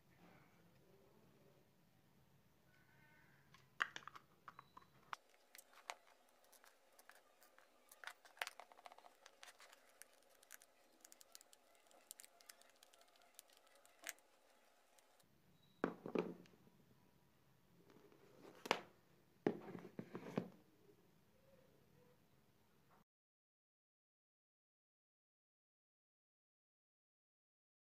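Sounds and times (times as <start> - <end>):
plastic case clicks and scrapes: 3.9 - 14.2.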